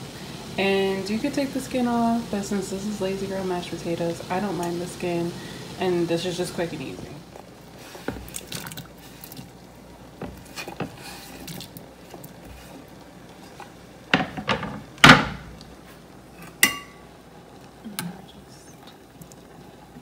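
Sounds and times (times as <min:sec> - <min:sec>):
potatoes plopping into water: 0:08.0 - 0:12.4
metal pot ringing: 0:16.6 - 0:17.1.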